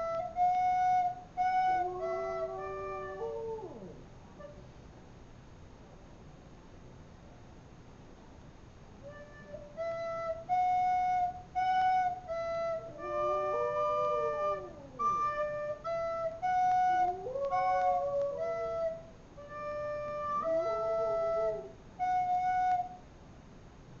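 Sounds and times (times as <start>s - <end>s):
recorder playing slow tune: 0.0s - 3.6s, 9.0s - 23.0s
dog howling: 1.6s - 4.0s, 12.7s - 19.0s, 19.6s - 21.8s.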